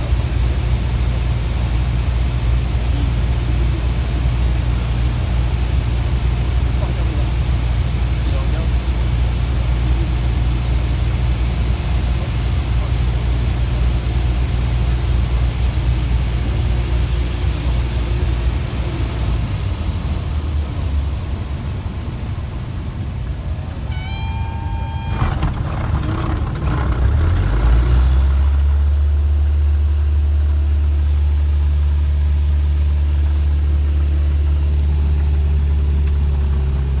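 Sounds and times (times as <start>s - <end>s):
light aircraft engine and propeller: 0.0s - 37.0s
warning horn: 23.9s - 25.4s.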